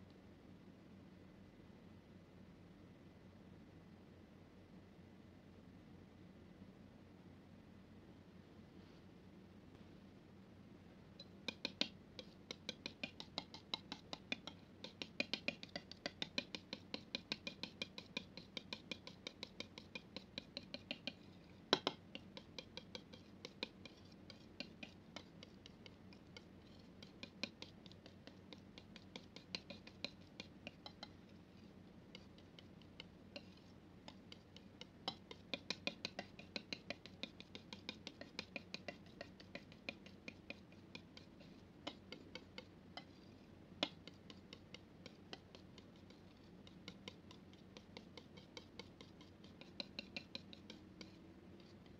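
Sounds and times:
palette knife mixing thick paint: 11.2 - 51.9.

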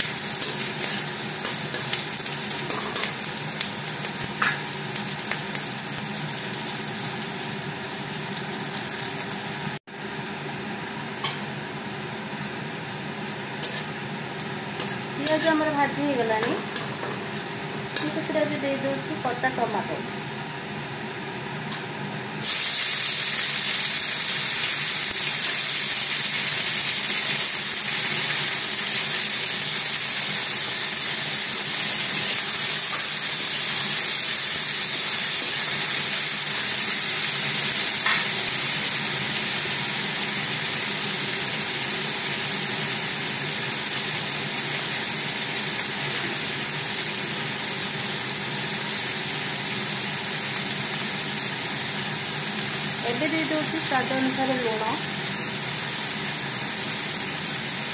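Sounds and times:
tomatoes sizzling in hot oil: 0.0 - 9.8, 13.0 - 20.3, 21.6 - 57.9
spatula stirring in wok: 14.7 - 15.6.

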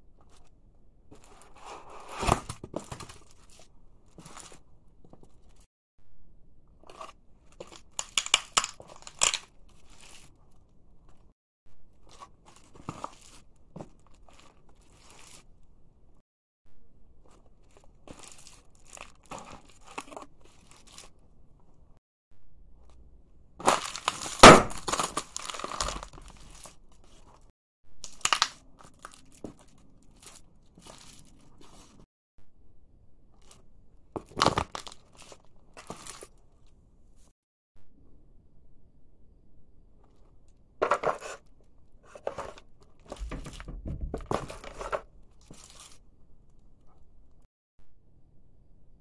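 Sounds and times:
plastic toy crunching underfoot: 0.2 - 5.7, 6.8 - 11.2, 11.9 - 15.5, 17.2 - 21.2, 23.6 - 32.0, 33.4 - 36.4, 40.8 - 46.0
potato chip bag crinkling: 6.8 - 10.3, 17.6 - 21.2, 23.6 - 27.4, 28.1 - 32.0, 34.2 - 36.4
chips crunching: 6.9 - 10.3, 23.6 - 26.8, 28.1 - 31.2.

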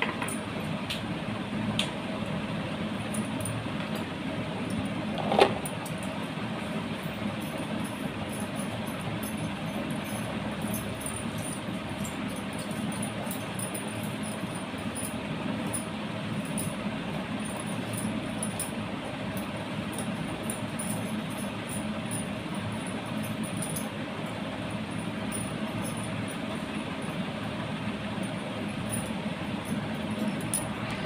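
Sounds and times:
ceiling fan whirring: 0.0 - 31.0
bangles clinking: 28.2 - 31.0.

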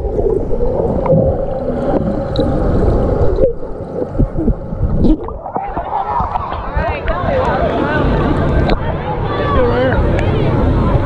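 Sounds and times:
air bubbles: 0.0 - 7.2
muffled underwater rushing water: 0.0 - 11.0.

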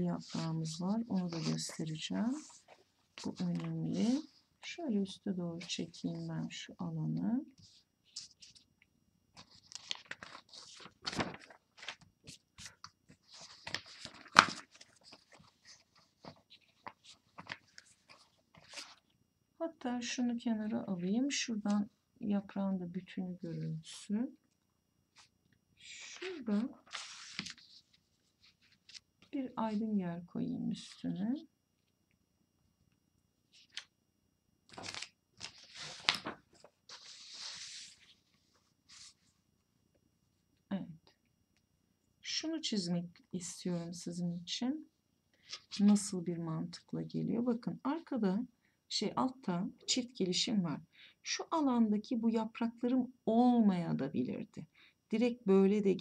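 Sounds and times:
paper rustling on a desk: 0.0 - 4.4, 9.4 - 19.1, 26.2 - 29.1, 34.7 - 39.4.

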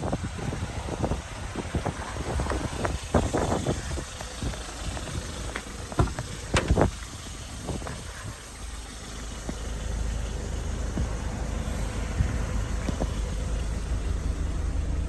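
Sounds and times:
low steady rumble: 0.0 - 15.0
car door clicks and knocks: 5.5 - 7.0
car door latch click: 6.0 - 6.9.

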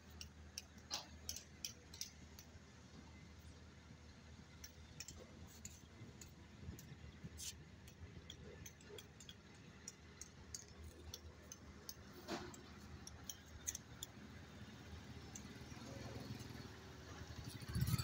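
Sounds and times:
light irregular clicks: 0.0 - 2.6, 7.8 - 14.3, 15.2 - 15.8.

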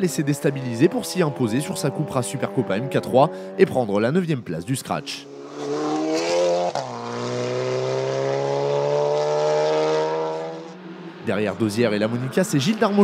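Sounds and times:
race car engine accelerating: 5.2 - 13.0.

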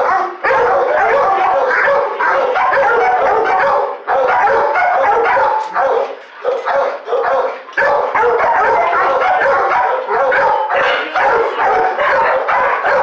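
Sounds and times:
dogs barking and yelping: 0.0 - 13.0.

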